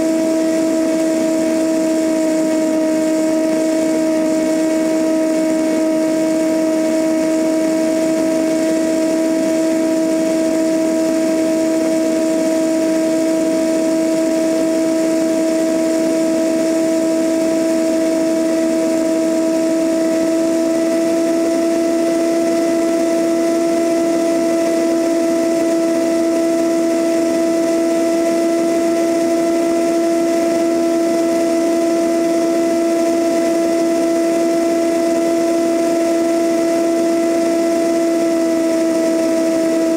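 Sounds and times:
propeller plane engine droning: 0.0 - 39.9.

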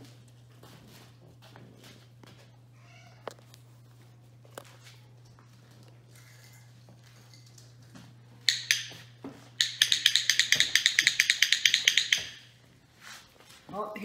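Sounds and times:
training clicker clicking: 8.5 - 9.0, 9.6 - 12.5.

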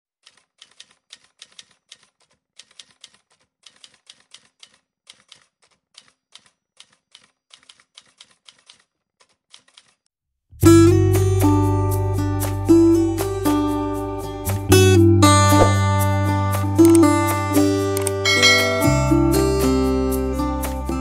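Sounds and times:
typewriter key clicks: 0.2 - 10.0
strummed guitar chord: 18.3 - 20.5.

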